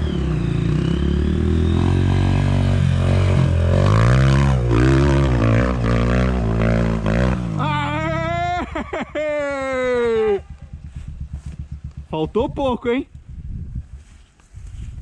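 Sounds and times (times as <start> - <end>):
motorcycle engine revving: 0.0 - 8.6, 9.5 - 12.8.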